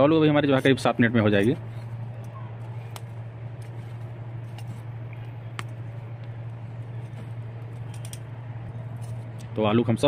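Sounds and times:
steady low hum: 0.0s - 10.0s
metal tongs clicking on charcoal: 7.6s - 8.3s.

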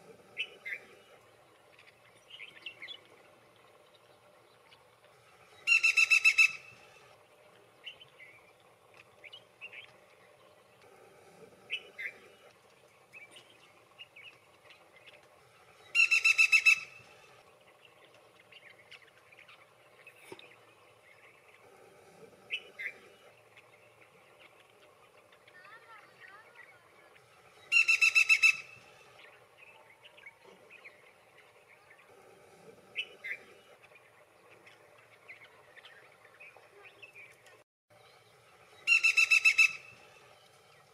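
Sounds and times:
woodpecker rattling call: 5.6s - 6.7s, 15.9s - 17.0s, 27.7s - 28.8s, 38.8s - 40.0s.

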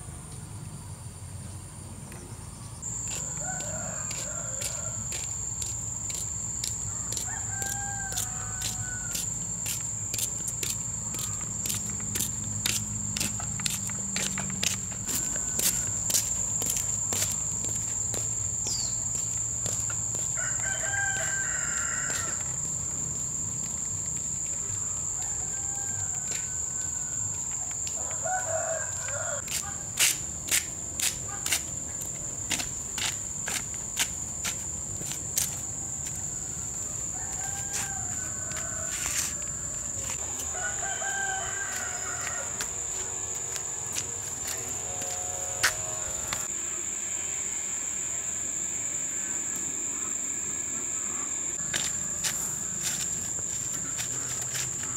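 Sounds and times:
high-pitched insect drone: 2.7s - 54.9s
rooster crowing: 2.9s - 5.3s, 6.8s - 9.8s, 14.1s - 17.1s, 19.6s - 23.3s, 24.6s - 29.8s, 35.7s - 46.5s.

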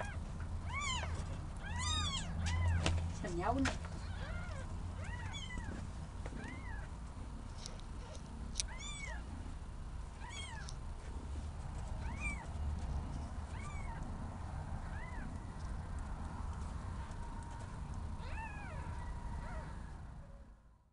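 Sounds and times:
kittens mewing: 0.0s - 2.9s, 4.0s - 6.9s, 7.6s - 9.3s, 10.2s - 10.8s, 12.0s - 12.5s, 13.5s - 14.2s, 14.8s - 15.4s.

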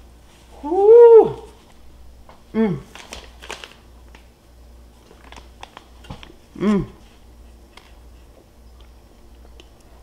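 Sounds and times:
person humming mm: 2.5s - 2.9s, 6.6s - 7.0s
mouth sounds of eating: 6.5s - 7.0s.

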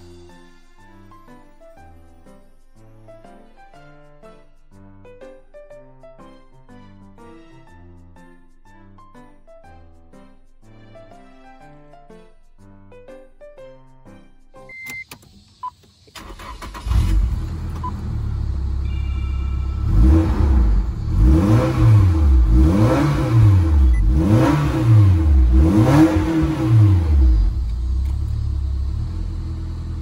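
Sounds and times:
car engine starting and idling: 14.7s - 30.0s
engine revving: 16.2s - 30.0s.

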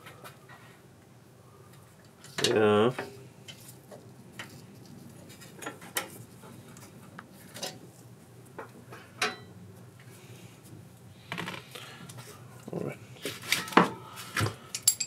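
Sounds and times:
metal parts and tools clinking: 14.7s - 15.0s.

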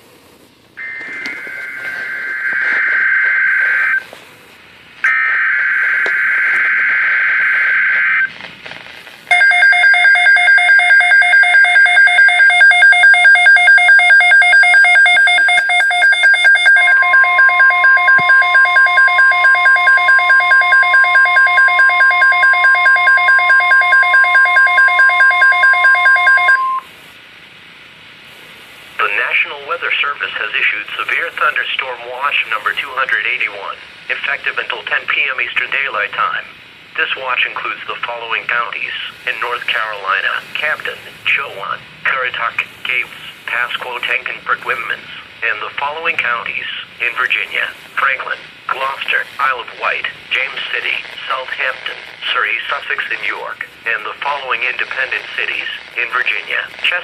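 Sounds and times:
rapidly pulsing alarm beeps: 0.8s - 4.0s, 9.3s - 26.9s
steady alert tone: 9.3s - 26.8s.

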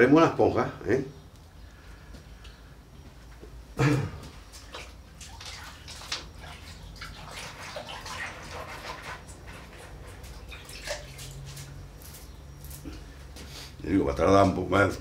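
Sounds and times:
water splashing and dripping: 4.5s - 12.2s.

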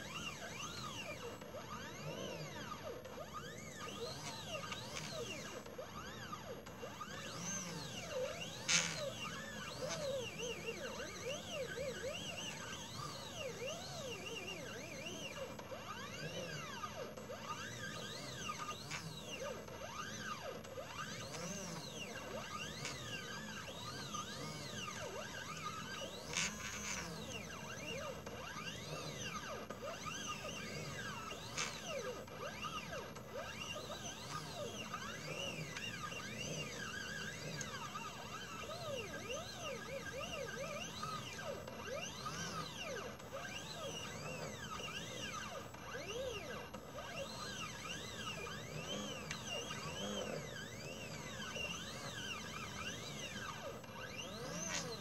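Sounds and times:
stepper motors whining: 0.0s - 55.0s.

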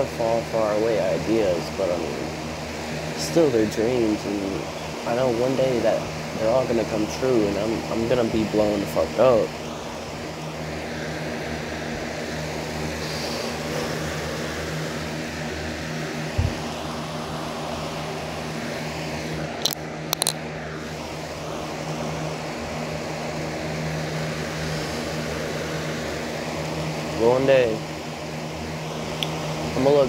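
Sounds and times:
box fan humming: 0.0s - 30.0s
low thump: 16.4s - 16.6s
sharp clicks: 19.6s - 20.4s.

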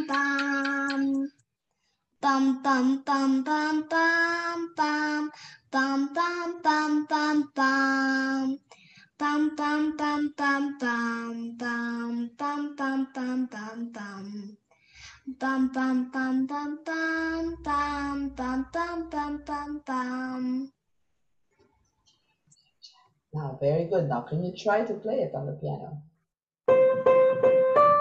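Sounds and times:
girl humming a melody: 0.0s - 1.2s, 15.2s - 20.7s.

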